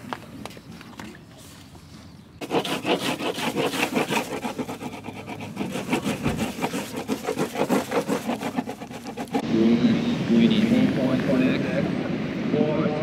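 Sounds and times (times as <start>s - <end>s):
wax rubbing on surfboard: 2.4s - 9.4s.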